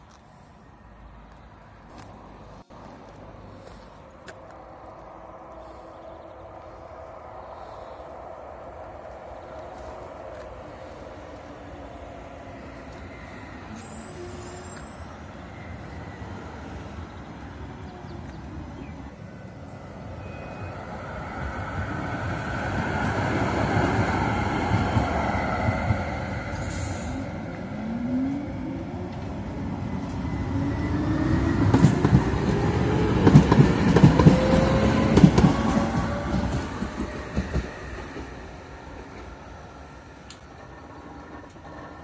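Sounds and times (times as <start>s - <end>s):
wheels clacking over rail joints: 31.6s - 42.0s.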